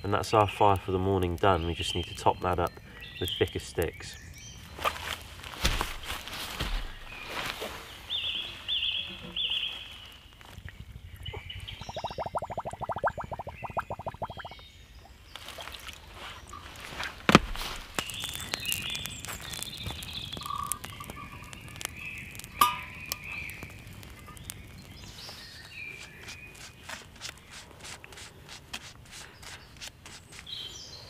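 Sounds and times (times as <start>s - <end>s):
birds singing: 0.0s - 5.1s, 6.2s - 31.0s
metallic clink: 22.6s - 23.0s.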